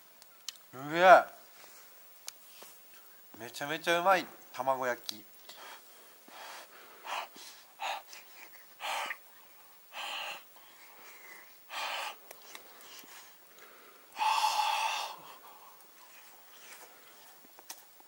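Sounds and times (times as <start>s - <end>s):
man exhaling with voice: 14.2s - 15.4s.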